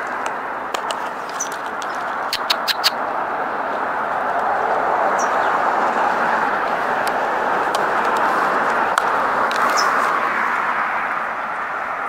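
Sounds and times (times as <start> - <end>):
rushing traffic noise: 0.0 - 12.0
high bird chirps: 1.3 - 3.0.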